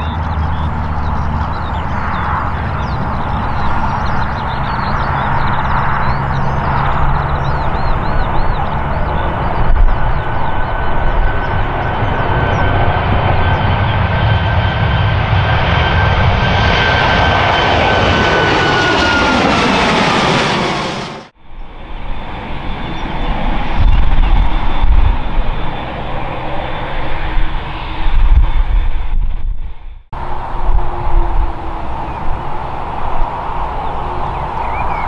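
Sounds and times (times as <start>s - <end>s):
jet engines roaring at takeoff: 0.0s - 35.0s
high fan tone: 17.7s - 35.0s.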